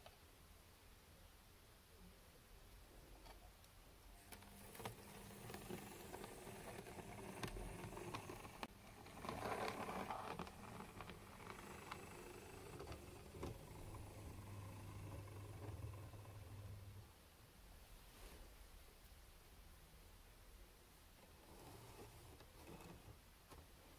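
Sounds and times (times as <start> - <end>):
small electric motor humming: 4.4 - 17.0
wheels clicking over rail joints: 4.7 - 17.0.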